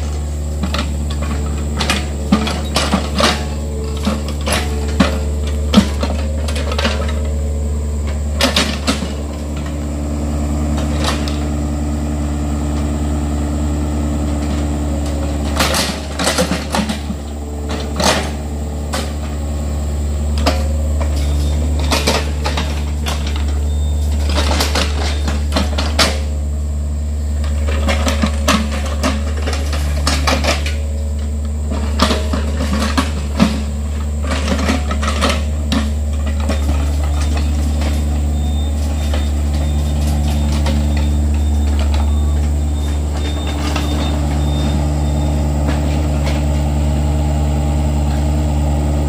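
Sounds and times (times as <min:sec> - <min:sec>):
metallic clanks of excavator bucket: 0:00.0 - 0:11.9, 0:14.2 - 0:26.5, 0:27.2 - 0:46.9
diesel engine running under load: 0:00.0 - 0:49.0.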